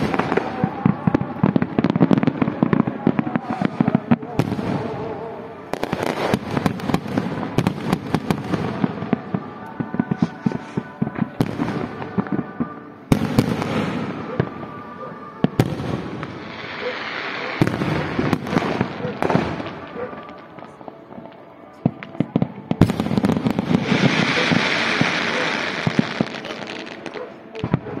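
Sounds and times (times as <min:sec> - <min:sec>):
fireworks crackling pops: 0:00.0 - 0:05.1, 0:05.7 - 0:14.6, 0:15.4 - 0:28.0
firework bangs: 0:00.0 - 0:28.0.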